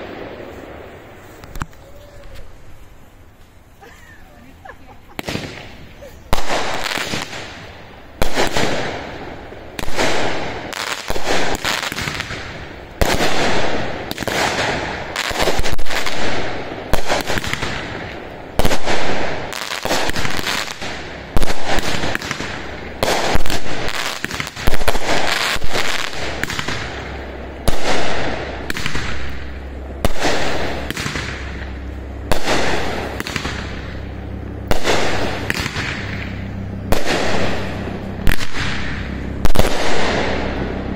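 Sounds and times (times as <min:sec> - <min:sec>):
fireworks bursting: 0:00.0 - 0:40.9.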